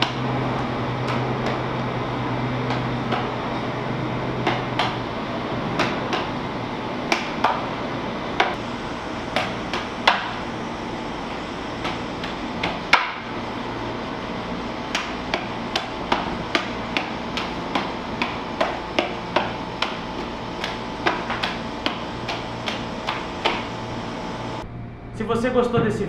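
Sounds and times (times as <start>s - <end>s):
juggling clubs knocking into hands: 2.6s - 3.4s, 4.4s - 5.0s, 5.7s - 6.4s, 7.1s - 7.7s.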